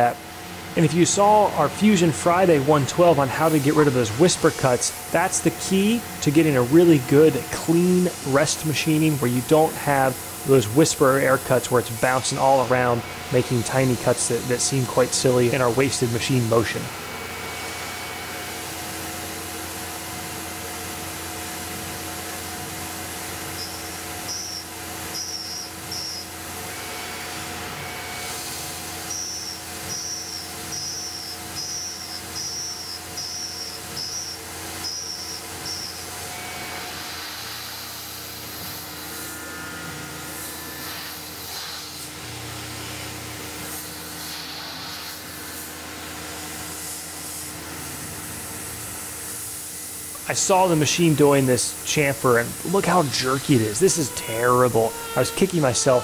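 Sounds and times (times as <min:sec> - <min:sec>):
milling machine running: 0:00.0 - 0:56.0
hiss of coolant spray: 0:02.9 - 0:16.8, 0:28.2 - 0:36.2, 0:36.9 - 0:39.3, 0:40.3 - 0:42.8, 0:43.5 - 0:54.2
short high chirps of cutter: 0:23.6 - 0:26.3, 0:29.1 - 0:36.1, 0:53.2 - 0:56.0.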